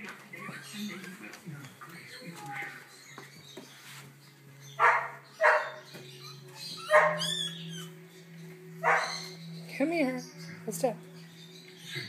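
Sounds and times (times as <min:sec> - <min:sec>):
puppy squeaking: 0:04.8 - 0:07.9
puppy yelping: 0:04.8 - 0:07.9.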